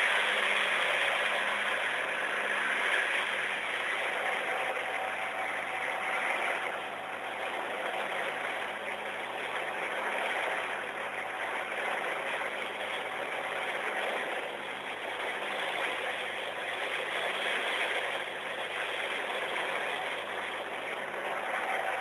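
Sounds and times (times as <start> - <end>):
boat diesel engines running: 0.0 - 22.0
rush of water from wake: 0.0 - 22.0.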